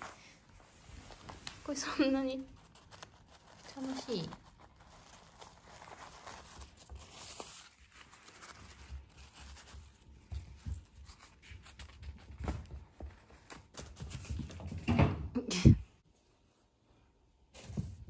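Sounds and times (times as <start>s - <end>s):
paper ball rustling and clicking: 1.1s - 14.7s.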